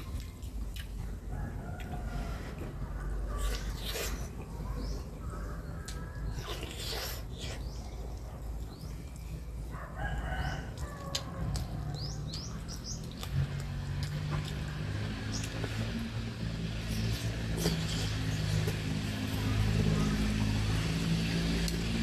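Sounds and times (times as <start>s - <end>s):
small birds chirping: 2.9s - 21.9s
low engine drone: 11.3s - 22.0s.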